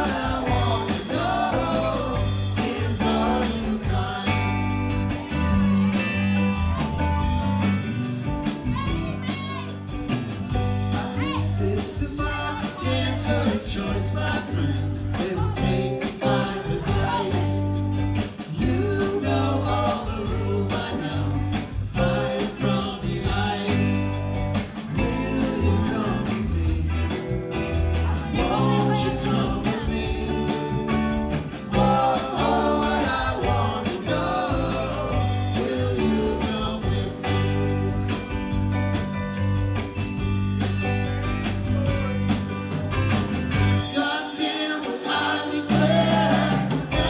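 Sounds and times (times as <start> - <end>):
person singing: 0.0 - 6.1, 10.9 - 17.8, 18.6 - 24.2, 24.8 - 27.4, 28.0 - 31.1, 31.7 - 38.3, 43.6 - 47.0
live rock band playing: 0.0 - 47.0.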